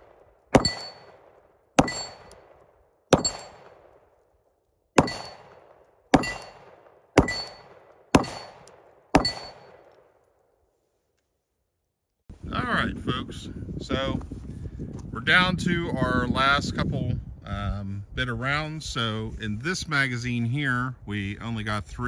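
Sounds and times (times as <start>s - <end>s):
pistol shots: 0.0s - 4.3s, 5.0s - 10.3s
metallic ring of steel target: 0.5s - 1.2s, 1.8s - 2.4s, 3.1s - 3.8s, 5.0s - 9.9s.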